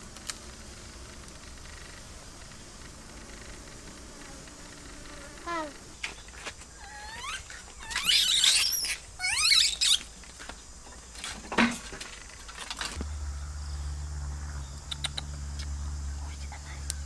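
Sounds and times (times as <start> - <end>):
steady low hum: 0.0 - 6.9, 13.0 - 17.0.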